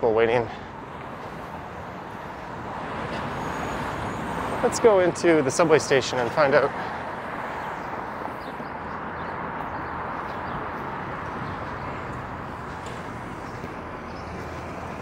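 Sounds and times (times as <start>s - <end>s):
traffic hum: 0.0s - 15.0s
faint footsteps: 9.6s - 14.7s.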